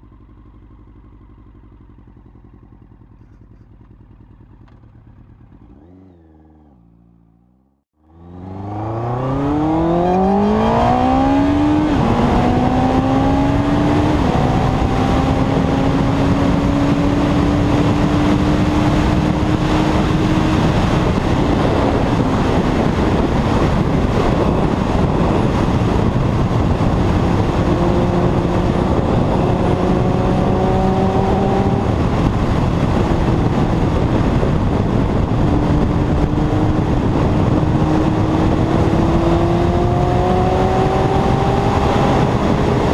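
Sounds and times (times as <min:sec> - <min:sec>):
motorcycle engine accelerating: 0:00.0 - 0:42.9
wind rush on microphone: 0:08.6 - 0:42.9.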